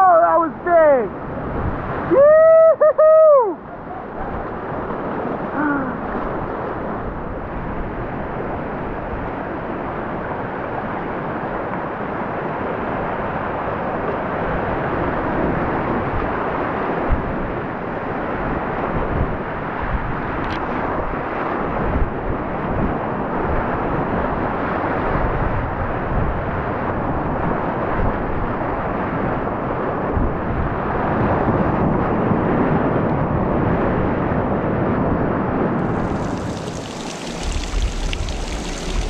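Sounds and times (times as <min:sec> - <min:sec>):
river whitewater rushing: 0:35.8 - 0:39.0.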